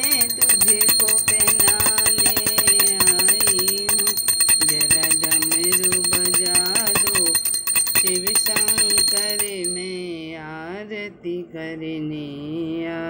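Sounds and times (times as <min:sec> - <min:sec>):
hand bell ringing rapidly: 0:00.0 - 0:09.9
person singing devotional song: 0:00.0 - 0:13.0.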